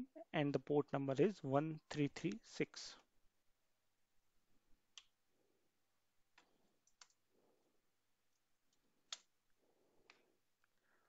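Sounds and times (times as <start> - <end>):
computer keys clicking: 6.4 - 7.2.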